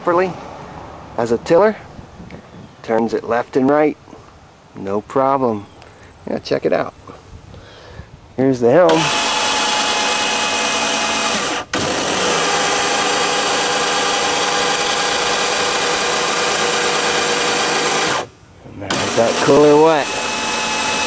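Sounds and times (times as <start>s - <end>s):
electric motor whining: 8.9s - 21.0s.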